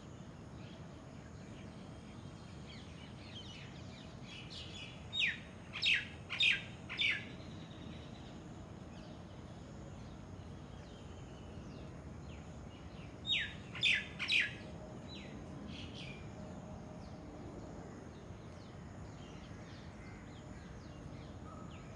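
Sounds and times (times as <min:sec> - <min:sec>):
steady outdoor hiss: 0:00.0 - 0:21.9
small birds chirping: 0:00.6 - 0:16.3.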